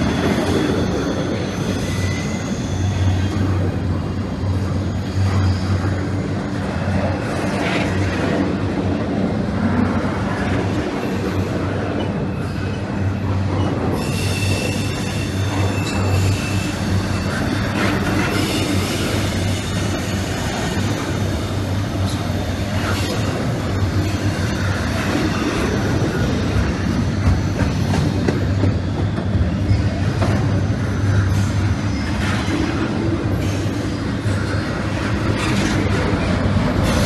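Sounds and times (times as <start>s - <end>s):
high wheel squeal: 0.0s - 3.6s, 11.3s - 21.5s
train wheels rumbling on rail: 0.0s - 37.0s.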